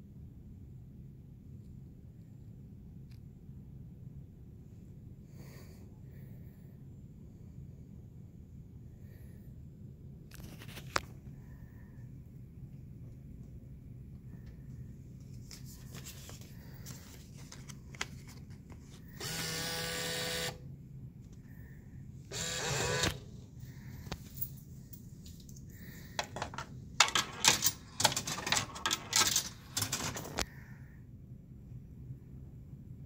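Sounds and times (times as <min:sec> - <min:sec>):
vending machine bill validator motor: 0:19.2 - 0:20.6, 0:22.3 - 0:23.4
coins clinking and rattling: 0:26.2 - 0:30.4.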